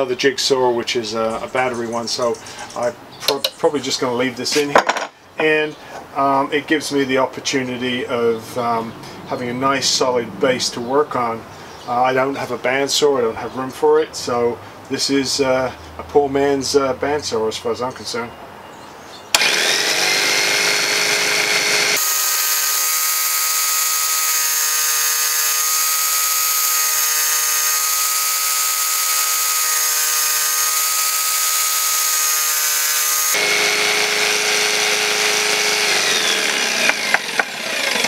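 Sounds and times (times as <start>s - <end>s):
jigsaw cutting wood: 19.3s - 38.0s.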